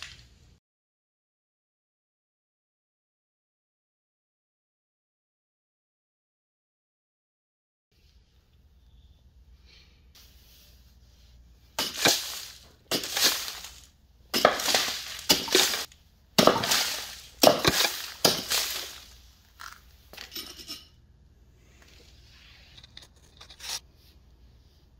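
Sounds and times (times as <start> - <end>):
axe chopping into block: 11.8 - 13.8, 14.4 - 19.0
debris rattling and scattering: 11.8 - 20.8.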